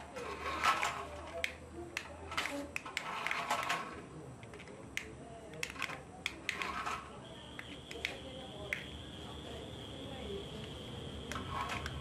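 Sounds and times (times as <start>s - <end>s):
sharp plastic clicks: 0.6s - 8.9s
toy car motor whine: 9.2s - 12.0s.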